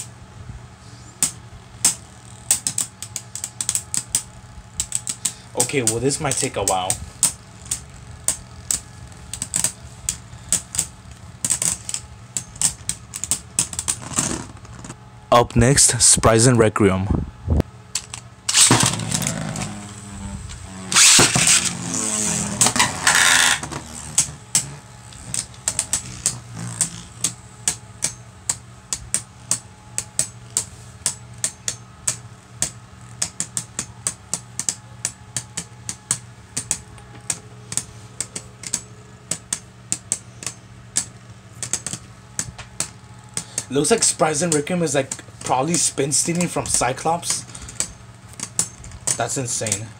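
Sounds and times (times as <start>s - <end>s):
tops grinding with rapid clicking: 1.8s - 15.0s, 18.0s - 28.2s
spinning tops whirring: 18.4s - 28.6s
spinning tops launching and clashing: 18.5s - 19.8s, 20.9s - 23.6s.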